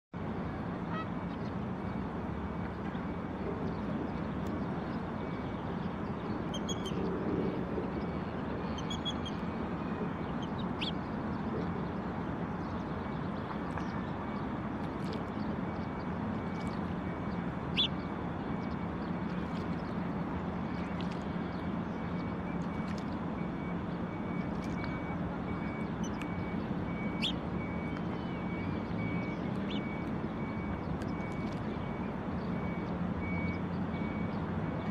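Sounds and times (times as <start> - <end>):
vehicle reversing beeps: 0.2 - 14.7, 15.4 - 34.9
traffic hum: 0.2 - 34.9
tern calls: 25.6 - 27.4.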